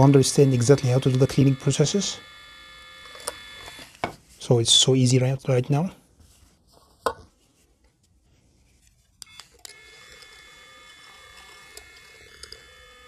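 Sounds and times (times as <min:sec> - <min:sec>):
heat gun fan whining: 0:00.0 - 0:04.1, 0:09.2 - 0:13.0.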